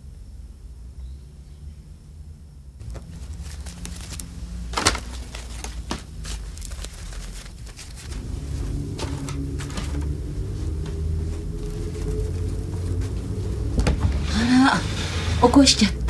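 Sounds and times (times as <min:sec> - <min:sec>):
low steady hum: 0:00.0 - 0:16.0
artificial flowers crinkling: 0:02.8 - 0:15.4.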